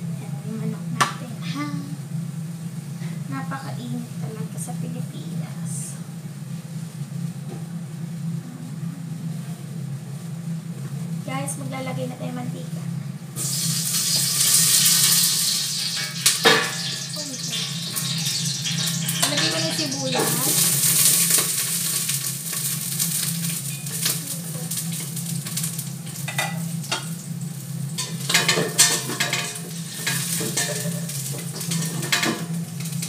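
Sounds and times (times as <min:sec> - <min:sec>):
hot oil sizzling: 0:09.1 - 0:33.0
metal spatula clinking on pot: 0:16.5 - 0:20.6.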